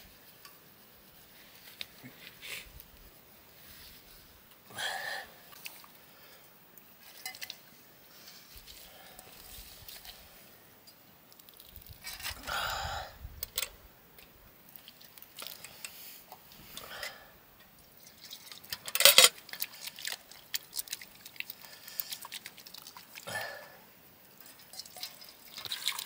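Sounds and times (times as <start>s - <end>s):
metal dishes clinking: 7.2s - 7.6s.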